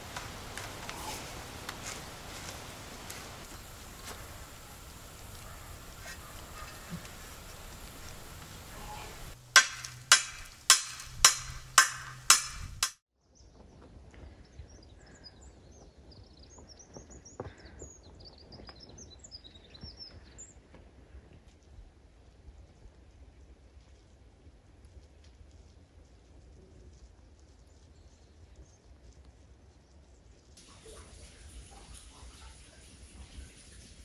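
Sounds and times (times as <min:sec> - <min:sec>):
birds chirping faintly: 0:00.0 - 0:13.5
sharp knocks: 0:09.5 - 0:13.0.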